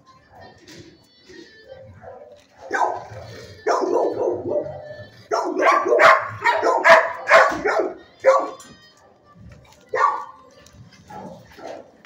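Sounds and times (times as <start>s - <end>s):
dog barking: 2.0s - 8.6s, 9.9s - 10.4s, 11.1s - 11.9s.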